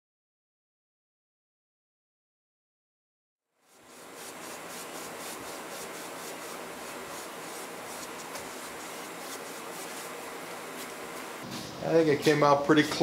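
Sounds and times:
cloth rubbing on wood: 3.6 - 12.5.

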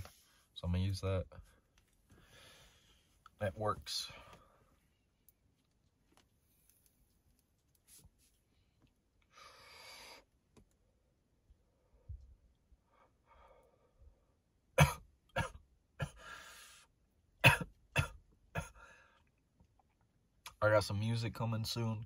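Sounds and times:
man coughing hard: 14.8 - 16.2, 17.4 - 18.8.

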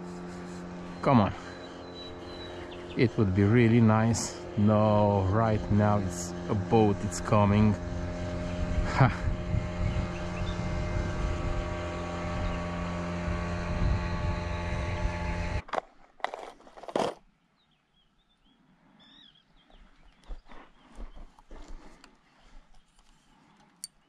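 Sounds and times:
motorboat engine running: 0.0 - 15.6.

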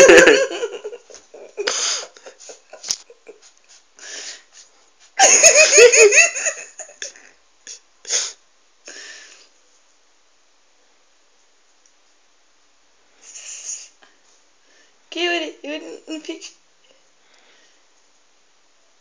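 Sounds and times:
person laughing hard: 0.0 - 3.5, 5.2 - 7.2.

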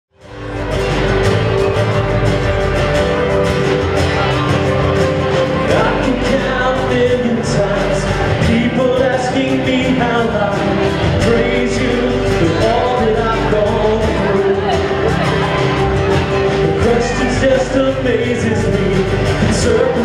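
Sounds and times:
acoustic guitar: 0.1 - 20.0
band playing worship song: 0.2 - 20.0
drums: 0.2 - 20.0
people singing: 5.4 - 20.0.

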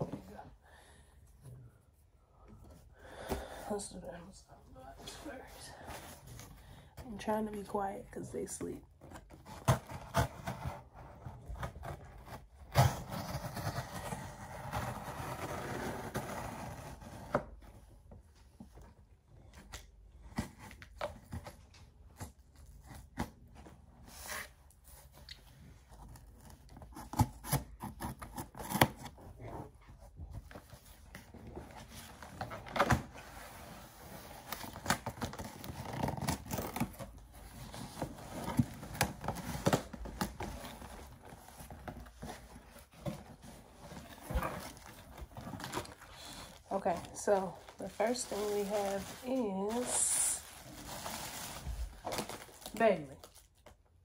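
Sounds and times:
cardboard box scraping: 9.4 - 17.4, 30.6 - 52.3.

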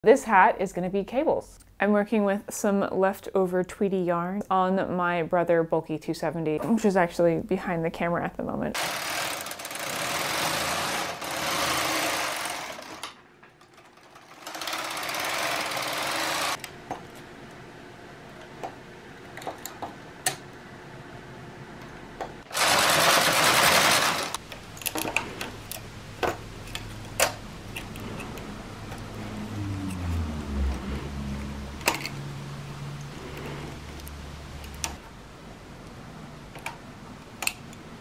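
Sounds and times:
knitting machine carriage rattling: 8.8 - 16.6, 22.5 - 25.5.

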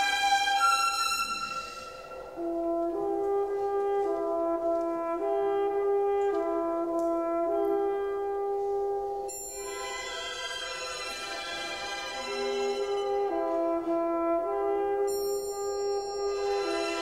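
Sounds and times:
orchestral instruments: 0.0 - 17.0
french horn playing slow line: 1.0 - 9.3, 12.2 - 15.3.

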